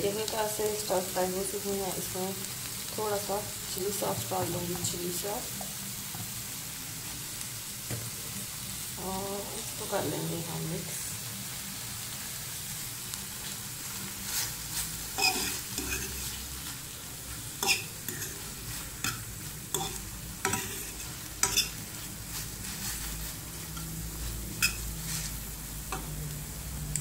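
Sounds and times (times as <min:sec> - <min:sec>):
vegetables sizzling in a frying pan: 0:00.0 - 0:27.0
metal spatula scraping a pan: 0:13.9 - 0:26.1.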